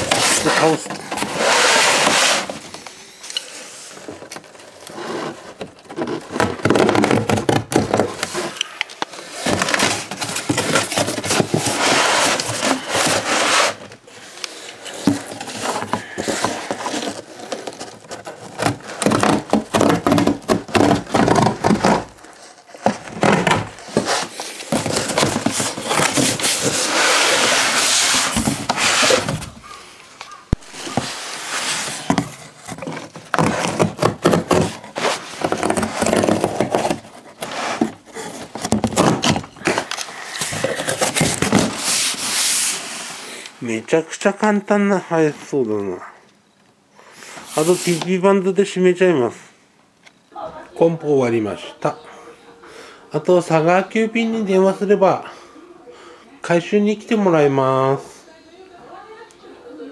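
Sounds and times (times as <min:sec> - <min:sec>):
cardboard rustling and crackling: 0:00.0 - 0:03.0, 0:03.6 - 0:43.1.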